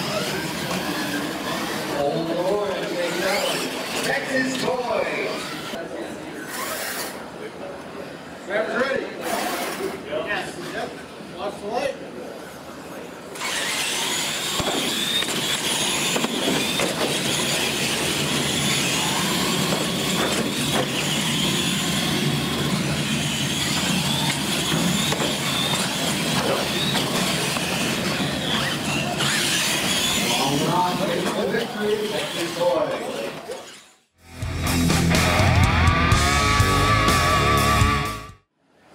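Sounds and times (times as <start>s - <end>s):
electric toy trucks whining: 0.0s - 5.8s, 6.4s - 7.3s, 12.4s - 34.2s.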